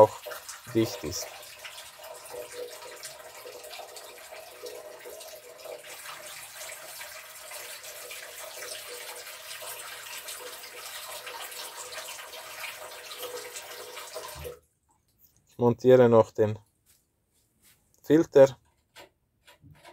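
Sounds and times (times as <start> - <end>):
water running from tap into basin: 0.0 - 14.6.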